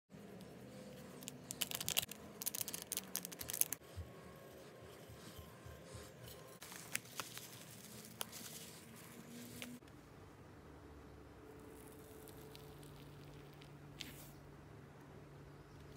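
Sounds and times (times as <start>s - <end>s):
plastic bags crinkling: 1.5s - 3.8s, 6.6s - 9.0s.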